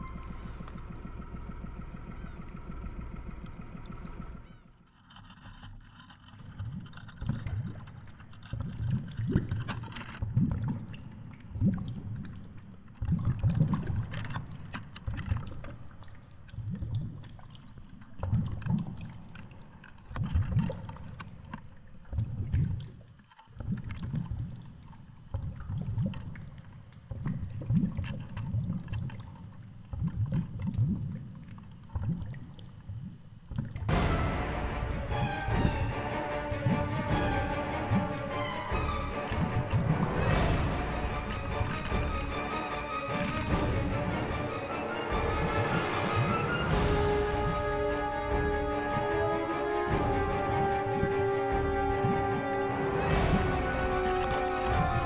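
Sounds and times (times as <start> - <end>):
steady hum: 0.0 - 4.6.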